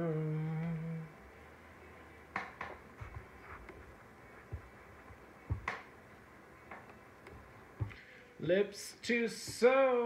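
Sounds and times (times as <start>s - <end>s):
faint clicks and taps: 2.3s - 6.0s, 6.6s - 8.0s.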